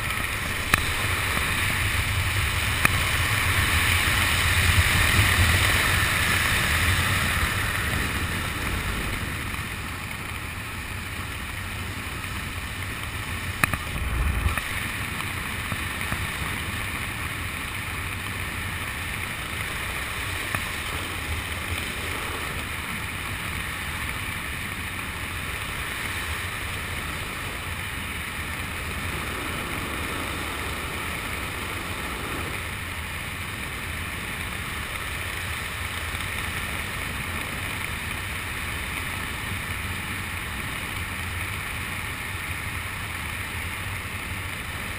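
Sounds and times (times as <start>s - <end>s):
wind rushing: 13.8s - 14.8s.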